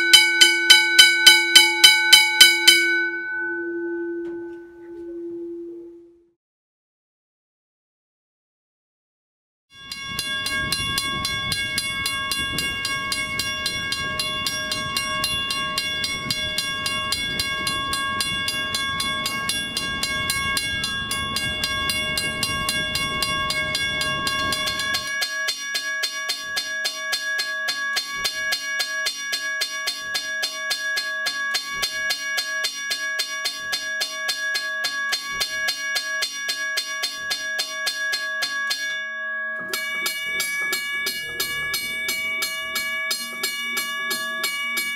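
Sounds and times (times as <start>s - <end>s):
mechanical crossing bell ringing: 0.0s - 5.4s, 9.8s - 44.9s
low outdoor rumble: 10.1s - 25.1s.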